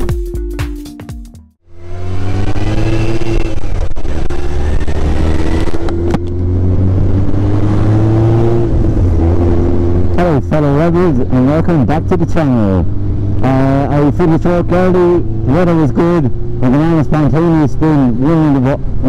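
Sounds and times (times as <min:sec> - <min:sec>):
motorcycle engine revving: 0:01.6 - 0:19.0.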